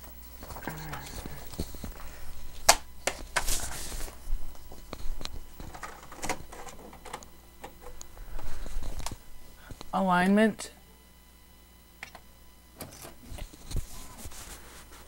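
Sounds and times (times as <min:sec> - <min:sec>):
paper rustling: 0:00.3 - 0:09.2, 0:13.2 - 0:15.0.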